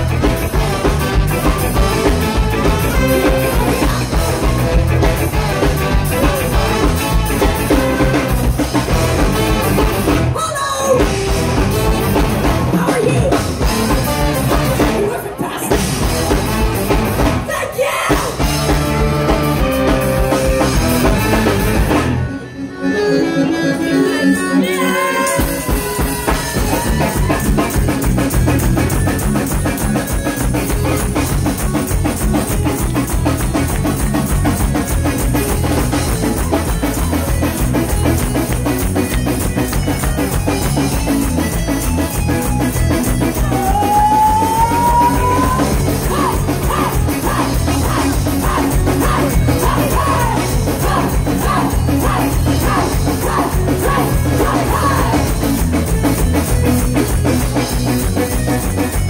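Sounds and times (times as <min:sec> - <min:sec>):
live ska band playing: 0:00.0 - 0:59.0
person singing lead: 0:43.4 - 0:55.4.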